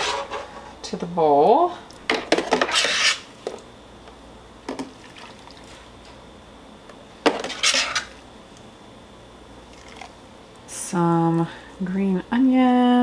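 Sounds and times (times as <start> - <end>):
liquid pouring: 9.7 - 10.2.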